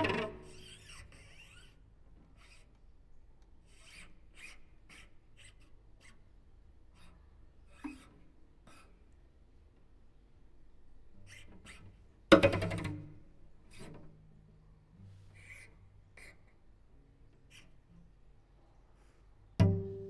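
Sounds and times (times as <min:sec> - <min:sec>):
small knock: 0:19.6 - 0:20.0.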